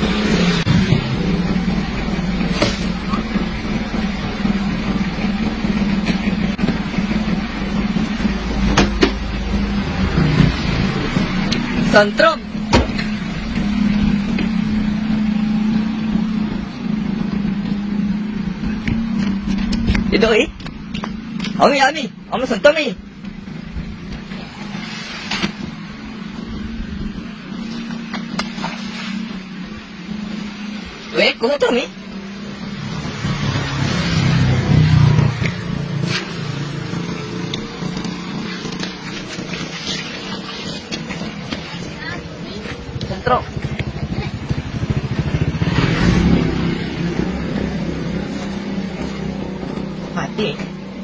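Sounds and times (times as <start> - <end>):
low motor hum: 0.0 - 51.0
small engine running: 31.7 - 51.0.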